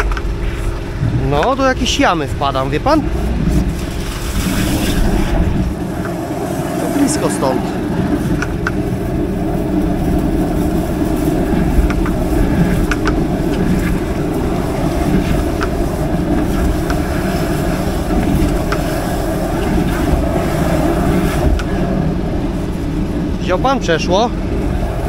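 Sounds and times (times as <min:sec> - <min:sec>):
sewer jetter droning: 0:00.0 - 0:25.0.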